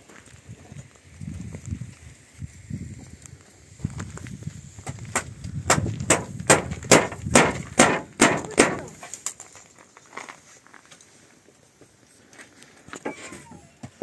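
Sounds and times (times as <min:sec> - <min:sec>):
hammer striking nails into wood: 0:05.1 - 0:09.0
low knocking of boards: 0:05.1 - 0:09.0.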